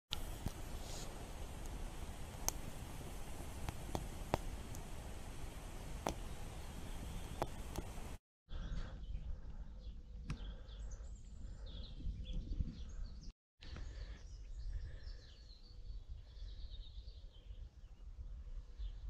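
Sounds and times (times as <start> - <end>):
songbirds chirping and singing: 6.1 - 18.1.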